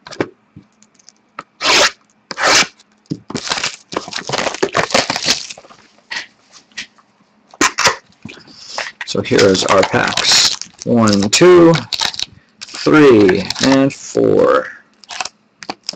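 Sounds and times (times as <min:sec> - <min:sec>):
plastic wrap ripping: 0:01.6 - 0:05.7, 0:09.3 - 0:13.8, 0:15.0 - 0:15.9
plastic wrap crackling: 0:01.9 - 0:05.8, 0:09.3 - 0:13.9, 0:15.0 - 0:15.9.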